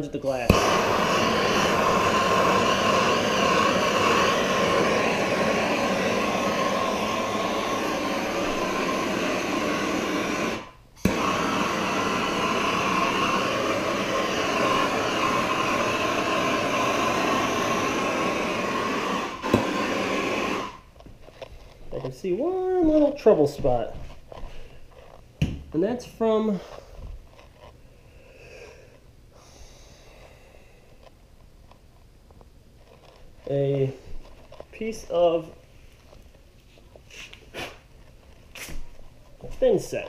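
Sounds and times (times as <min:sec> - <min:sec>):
torch igniter click: 0:00.5 - 0:05.4, 0:19.4 - 0:19.8
gas torch hissing roar: 0:00.5 - 0:20.9.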